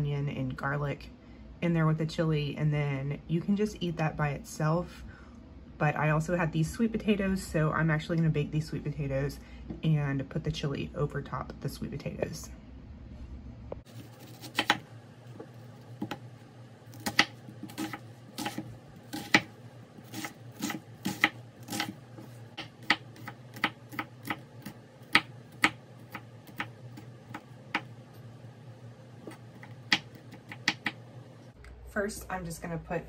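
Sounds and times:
knife chopping on wooden board: 0:14.0 - 0:14.8, 0:16.9 - 0:27.9, 0:29.2 - 0:31.0.

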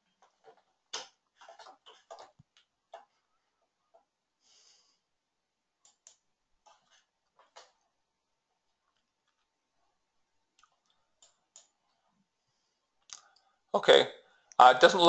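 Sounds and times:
faint clicks and taps: 0:00.0 - 0:04.2, 0:05.8 - 0:12.3.

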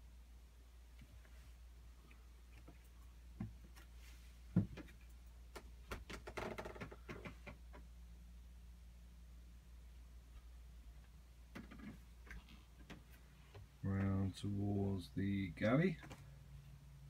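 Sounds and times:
steady low hum: 0:07.3 - 0:17.0.

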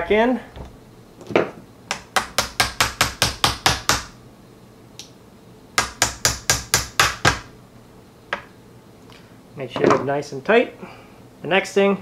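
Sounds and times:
small hammer tapping pins: 0:01.9 - 0:04.2.

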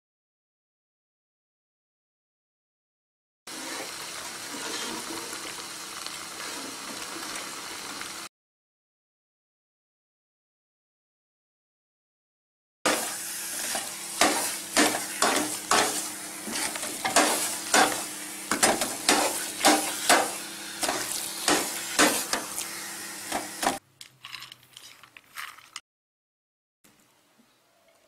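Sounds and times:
food sizzling: 0:03.5 - 0:08.3, 0:12.9 - 0:23.8.

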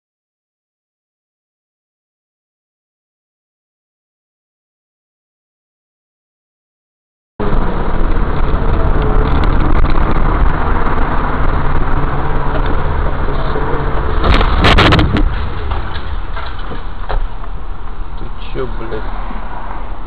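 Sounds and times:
car engine and road noise: 0:07.4 - 0:20.0
collision crunching clatter: 0:08.0 - 0:18.3.

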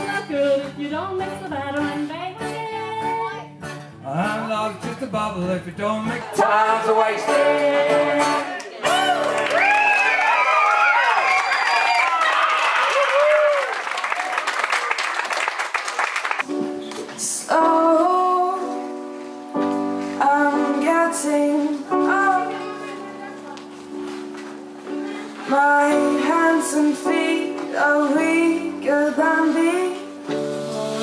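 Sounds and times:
woman singing: 0:00.0 - 0:03.6, 0:17.2 - 0:19.0, 0:20.2 - 0:23.6, 0:25.0 - 0:31.0
audience clapping: 0:08.5 - 0:16.5
live band playing chords: 0:30.1 - 0:31.0.

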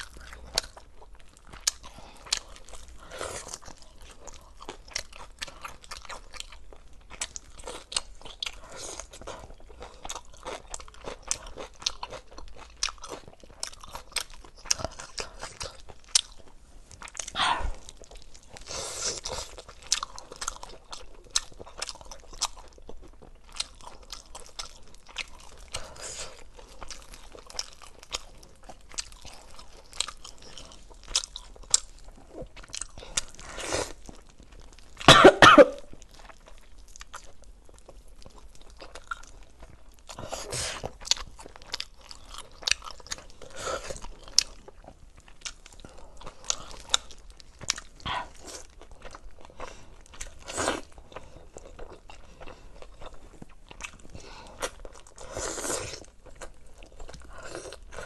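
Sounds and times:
close chewing and crunching: 0:00.0 - 0:58.0
person coughing: 0:35.1 - 0:35.9.

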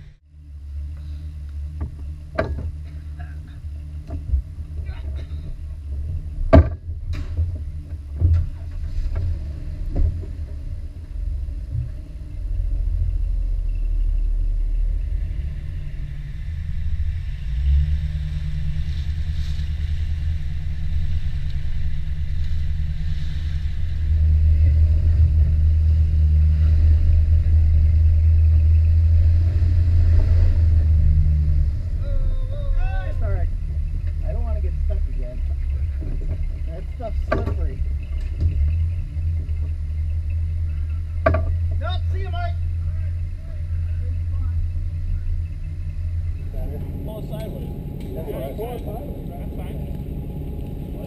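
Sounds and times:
car engine running under load: 0:00.0 - 0:51.0
sharp knocks: 0:06.5 - 0:09.2, 0:41.2 - 0:41.8.

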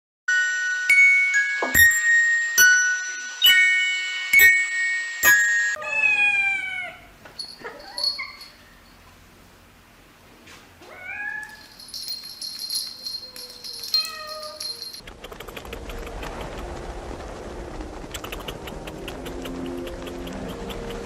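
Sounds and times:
cat meowing: 0:05.8 - 0:07.1, 0:10.8 - 0:11.7.

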